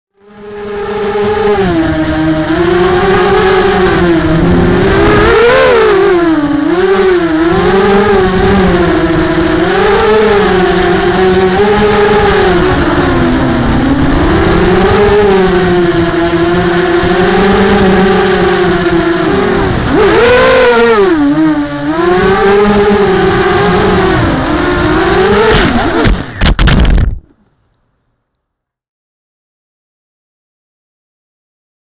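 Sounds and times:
quadcopter propellers whining: 0.2 - 27.0
quadcopter crashing into road: 17.8 - 27.3.

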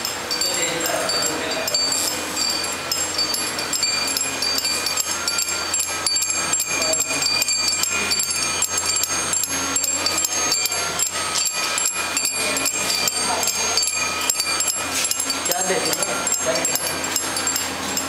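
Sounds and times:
chimes ringing: 0.0 - 18.0.

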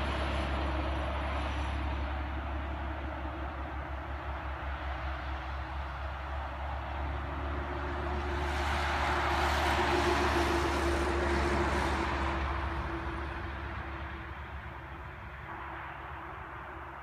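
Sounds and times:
vehicle passing by: 0.0 - 17.0.

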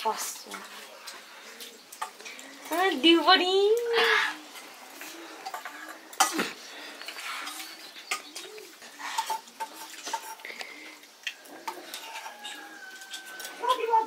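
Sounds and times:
dove cooing: 3.8 - 14.0
spoons clinking on plates: 4.6 - 14.0.

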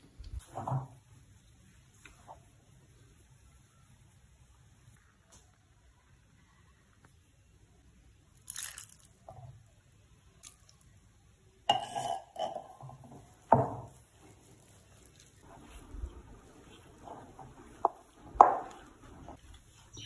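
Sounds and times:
pastry crumbs rustling: 8.3 - 9.2, 13.2 - 20.0
water being poured: 8.5 - 9.1.

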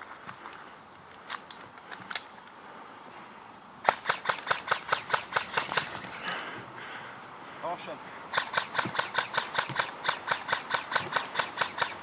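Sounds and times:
airsoft gun shots: 3.8 - 5.9, 8.3 - 12.0.

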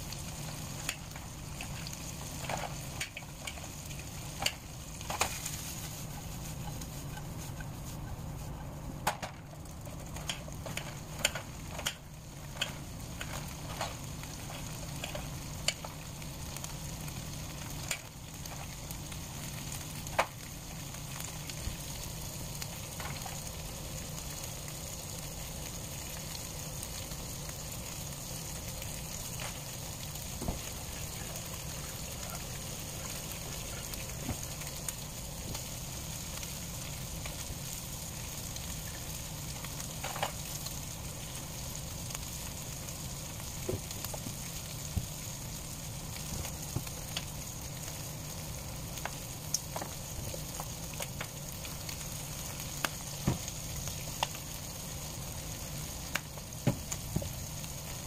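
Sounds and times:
sausage sizzling in frying pan: 0.0 - 58.0.

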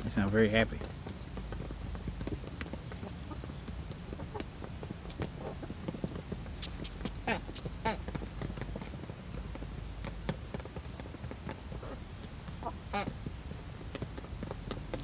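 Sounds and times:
hens pecking feed: 0.0 - 15.0
soft hen calls: 7.2 - 8.1, 11.8 - 13.2.

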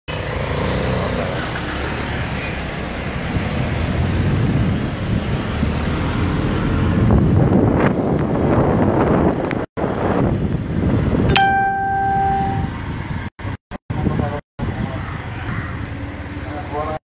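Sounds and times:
motorcycle engine: 0.1 - 7.1
road noise: 0.1 - 17.0.

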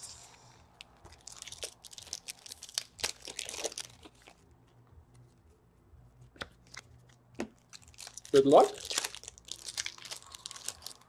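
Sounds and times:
card pack wrappers crinkling: 0.8 - 4.4, 6.4 - 11.0.

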